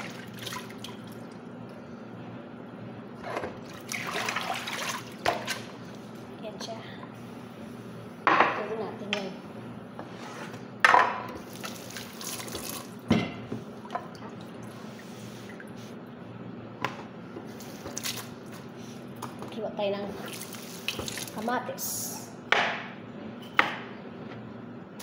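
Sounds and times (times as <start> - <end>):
water running into sink: 20.2 - 21.5.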